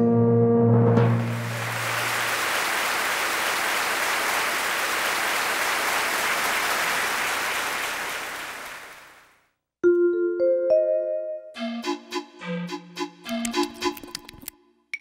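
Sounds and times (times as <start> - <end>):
audience applause: 1.0 - 9.4.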